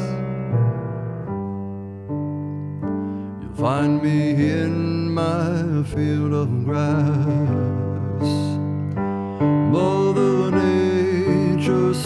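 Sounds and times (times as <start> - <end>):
piano playing slow chords: 0.0 - 12.0
man singing with vibrato: 3.4 - 8.8, 9.6 - 12.0.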